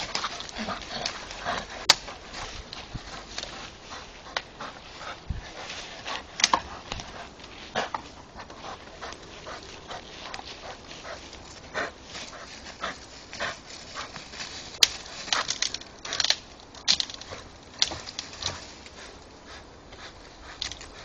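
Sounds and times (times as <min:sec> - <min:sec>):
wood cracking: 0:00.0 - 0:09.2, 0:12.3 - 0:19.1
dog panting: 0:00.0 - 0:14.4, 0:17.2 - 0:21.0
scuffling through dry leaves: 0:00.0 - 0:16.0.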